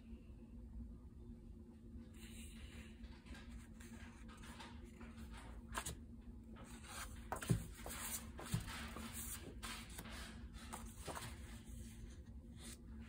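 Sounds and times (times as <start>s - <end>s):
paper cards rustling: 3.3s - 6.0s, 6.6s - 13.0s.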